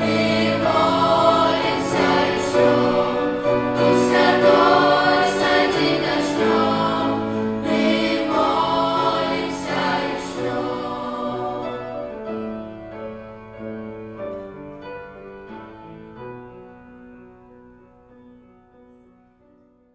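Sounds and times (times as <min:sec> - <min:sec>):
children's choir singing: 0:00.0 - 0:12.5
instrumental accompaniment: 0:00.0 - 0:18.4.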